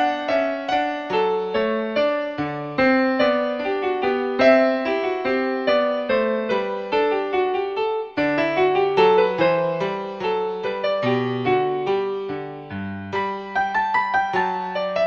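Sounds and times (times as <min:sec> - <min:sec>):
piano music: 0:00.0 - 0:15.0.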